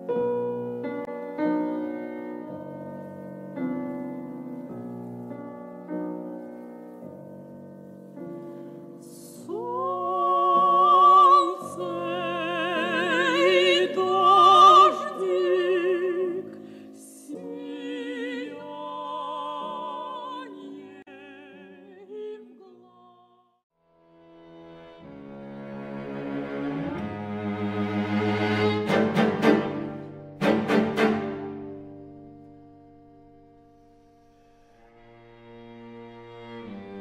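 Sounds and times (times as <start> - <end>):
piano chords: 0.0 - 22.0, 24.1 - 37.0
operatic singing voice: 9.1 - 23.4.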